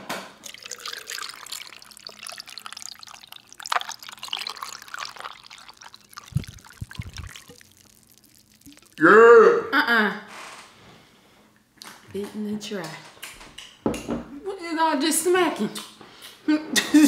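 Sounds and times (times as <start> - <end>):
ice crackling and fizzing: 0.4 - 9.0
liquid trickling into glass: 0.4 - 9.0.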